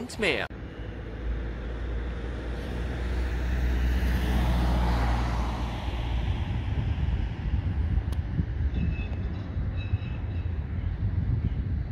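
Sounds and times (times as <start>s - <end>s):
van driving past: 0.6s - 8.0s
steady low rumble: 5.9s - 11.9s.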